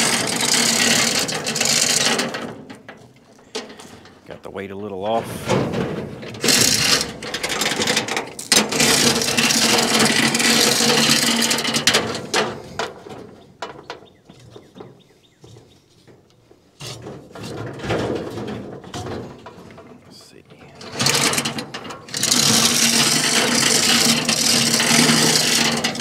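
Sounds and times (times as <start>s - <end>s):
wood scraping on steel: 0.0s - 26.0s
knocks and rubs: 5.0s - 26.0s.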